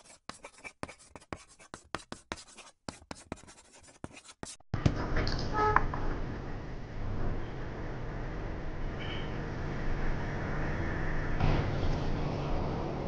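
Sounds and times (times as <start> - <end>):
marker pen writing on board: 0.0 - 4.6.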